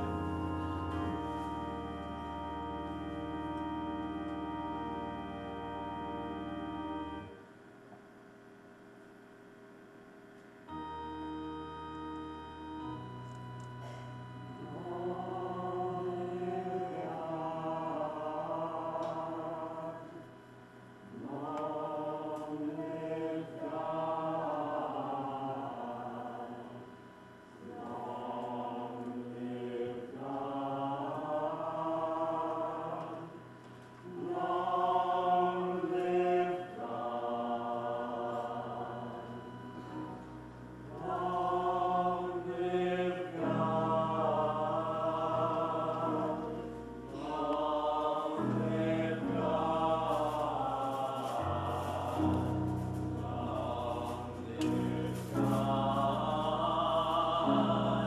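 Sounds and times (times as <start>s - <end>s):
choir singing chant-like line: 13.8s - 20.2s, 21.1s - 26.9s, 27.6s - 33.4s, 34.0s - 40.2s, 40.9s - 58.0s.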